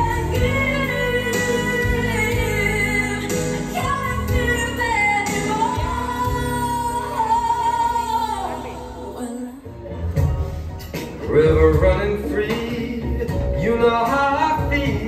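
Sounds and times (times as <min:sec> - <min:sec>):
woman singing: 0:00.0 - 0:09.8
backing music: 0:00.0 - 0:15.0.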